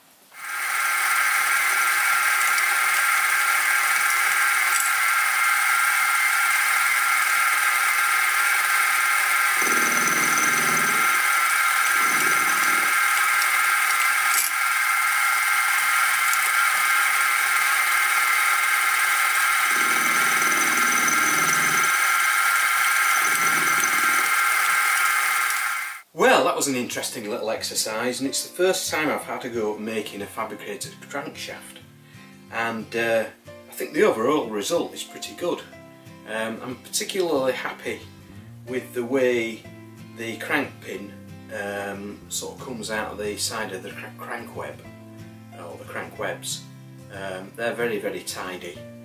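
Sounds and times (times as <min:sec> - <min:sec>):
milling machine high whine: 0:00.3 - 0:26.1
lower machining sound: 0:00.4 - 0:26.1.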